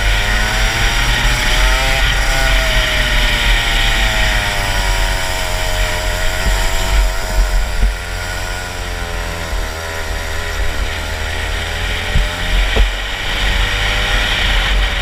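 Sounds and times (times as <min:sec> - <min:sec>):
kart engine at high revs: 0:00.0 - 0:15.0
short thumps: 0:12.0 - 0:13.0.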